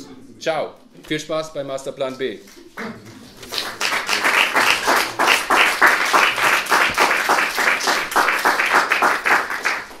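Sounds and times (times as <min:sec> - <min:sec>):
audience applauding: 0:03.5 - 0:10.0.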